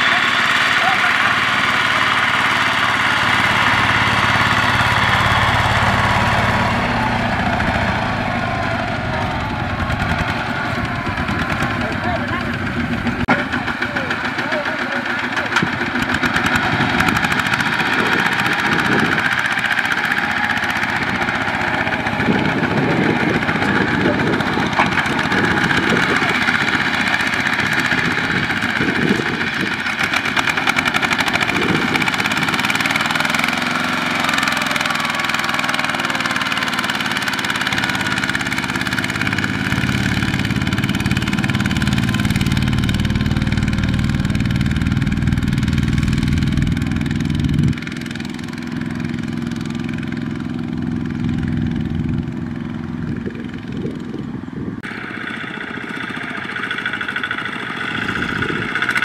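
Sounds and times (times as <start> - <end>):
diesel walking tractor engines running: 0.0 - 59.0.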